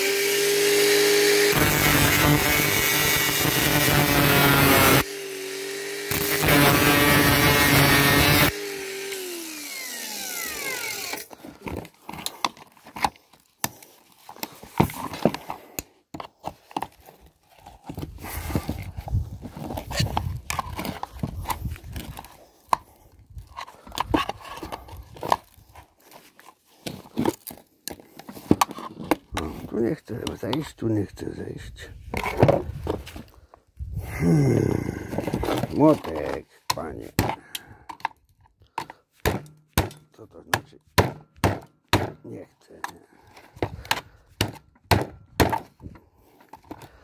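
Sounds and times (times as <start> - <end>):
angle grinder cutting metal: 0.0 - 11.4
grinder winding down whine: 0.0 - 11.4.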